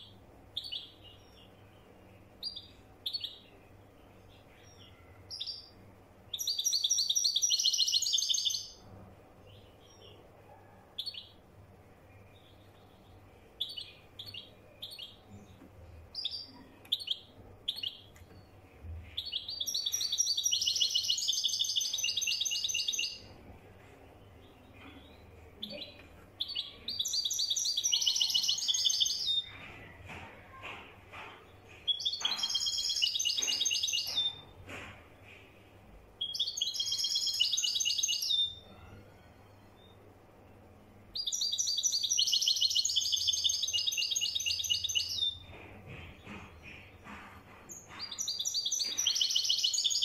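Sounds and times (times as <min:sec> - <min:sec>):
goldfinch singing: 0:19.2 - 0:23.3, 0:47.8 - 0:50.0.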